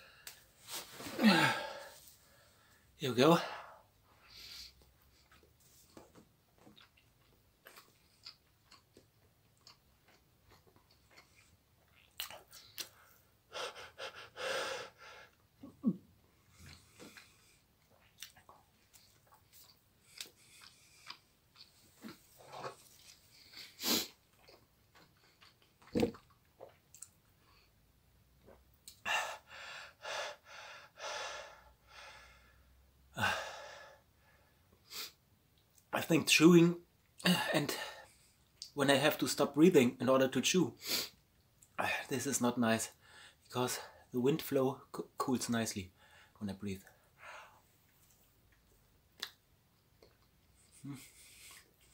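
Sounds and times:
faint chewing: 4.8s - 13.3s, 16.3s - 27.7s, 47.8s - 51.9s
man breathing hard: 13.5s - 15.4s, 29.1s - 32.6s
wet mouth clicks: 49.2s - 49.4s.

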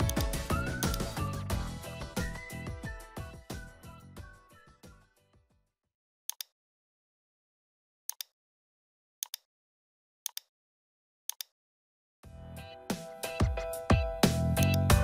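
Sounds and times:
computer mouse clicks: 0.0s - 1.1s, 6.3s - 6.5s, 8.1s - 8.3s, 9.2s - 9.5s, 10.3s - 10.5s, 11.3s - 11.5s, 14.6s - 14.8s.

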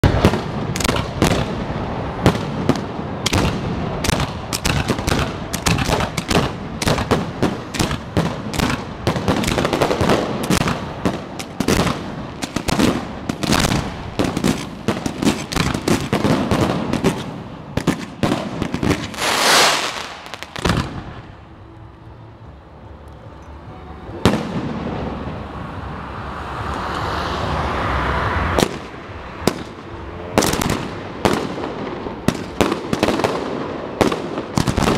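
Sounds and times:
firework bangs: 0.0s - 21.4s, 24.2s - 25.4s, 28.5s - 34.9s
firework hissing: 18.5s - 21.3s.

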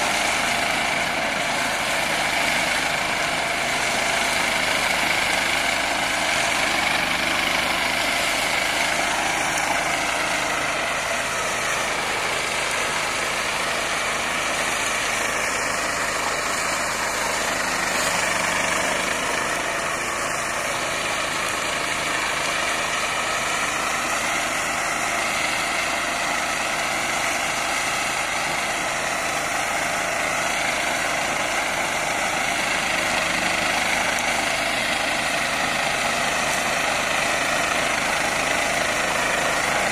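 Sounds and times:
tractor mulcher cutting grass: 0.0s - 39.9s.

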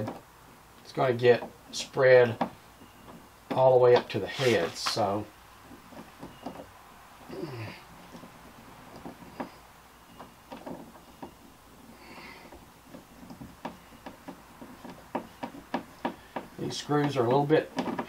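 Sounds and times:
clicks and knocks on plastic hull: 12.4s - 18.0s.

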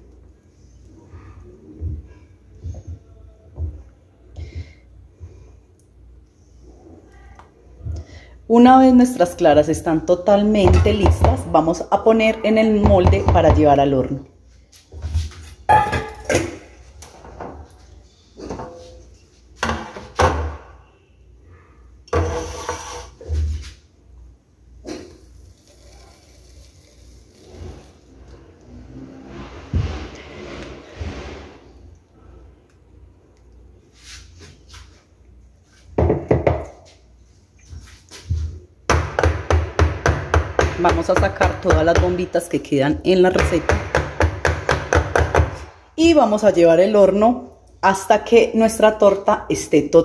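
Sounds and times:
kitchenware knocking on countertop: 10.6s - 11.4s, 12.8s - 13.7s, 36.0s - 36.7s
metal pan scraping countertop: 22.1s - 23.8s, 28.7s - 31.8s.

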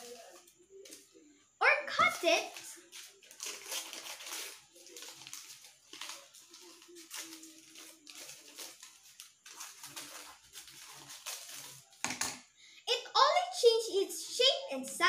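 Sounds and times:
paper rustling: 1.9s - 12.2s.

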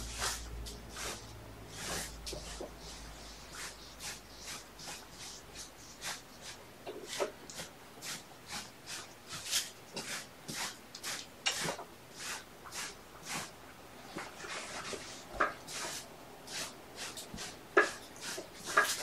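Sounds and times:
broom sweeping floor: 0.0s - 19.0s.

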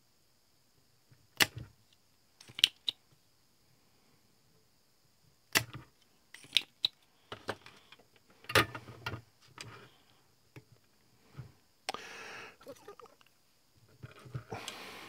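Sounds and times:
clicks of parts handled: 2.4s - 3.0s, 6.4s - 9.7s.

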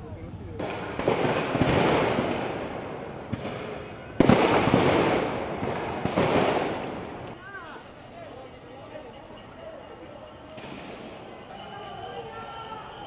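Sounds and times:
gunshots with long echo: 0.6s - 7.3s.

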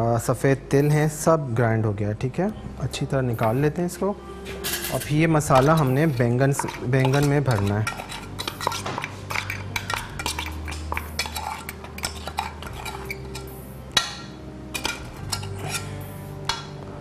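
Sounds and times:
metal spoon scraping steel jar: 3.4s - 3.7s, 4.5s - 14.1s, 14.7s - 16.4s.

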